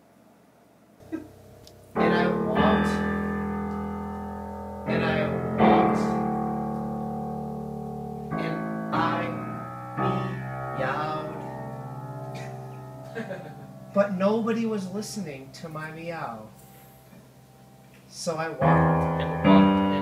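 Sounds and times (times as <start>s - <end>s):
guitar chords strummed: 1.0s - 16.0s.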